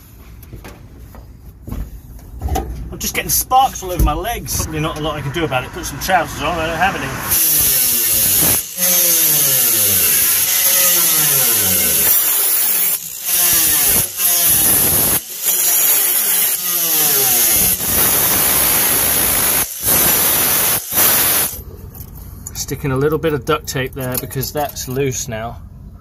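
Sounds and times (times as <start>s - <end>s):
angle grinder cutting sheet metal: 4.6s - 21.6s.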